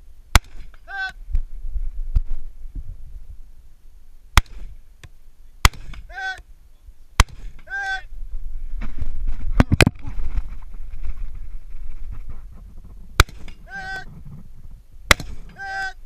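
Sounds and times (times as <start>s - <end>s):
rifle shots: 5.6s - 6.1s, 7.2s - 7.7s, 13.2s - 13.6s, 15.1s - 15.6s.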